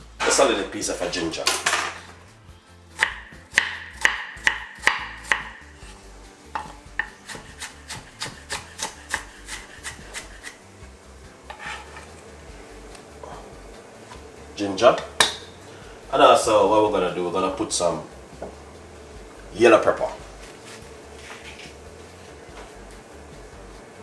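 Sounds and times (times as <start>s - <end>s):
knife chopping on wooden board: 3.0s - 5.7s, 6.5s - 10.6s.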